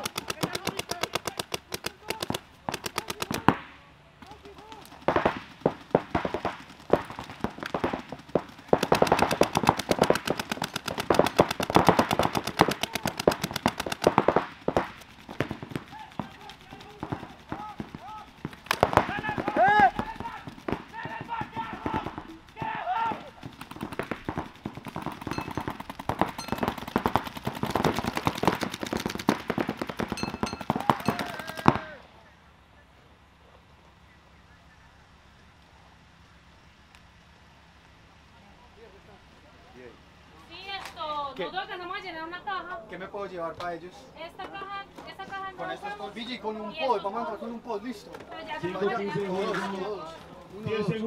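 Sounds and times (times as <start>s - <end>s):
paintball markers firing: 0.0s - 31.9s.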